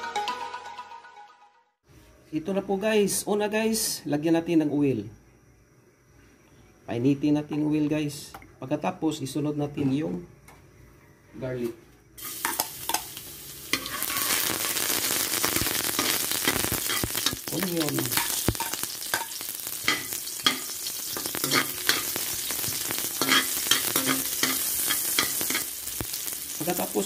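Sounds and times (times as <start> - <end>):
garlic and onion sizzling in oil: 12.2 - 27.0
spatula scraping pan: 13.7 - 14.8, 18.2 - 22.2, 23.1 - 25.7.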